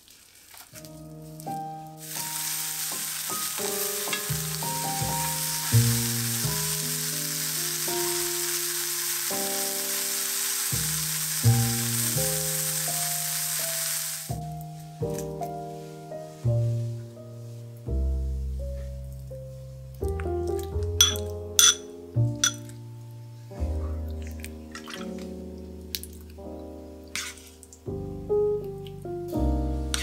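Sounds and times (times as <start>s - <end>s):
soft piano music: 0.8s - 30.0s
scallops sizzling in frying pan: 2.0s - 14.4s.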